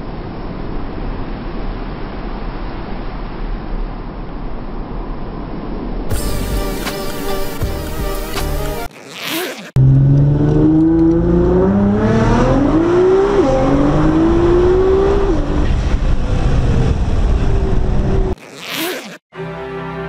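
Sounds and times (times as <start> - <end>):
car engine accelerating hard: 9.3 - 18.9.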